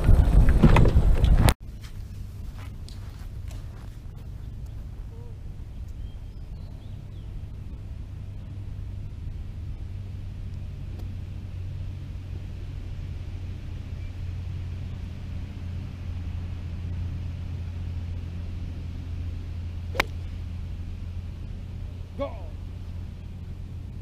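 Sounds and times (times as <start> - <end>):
steady low rumble: 0.0 - 24.0
golf club striking ball: 19.9 - 20.4.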